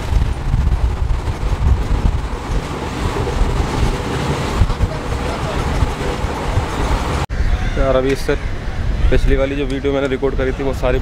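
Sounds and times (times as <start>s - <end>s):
train wheels rumbling: 0.0s - 7.3s.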